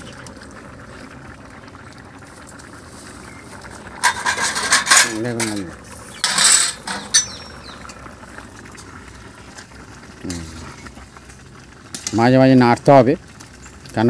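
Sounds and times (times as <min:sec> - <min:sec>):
metal spatula scraping a pot: 0:04.0 - 0:07.4.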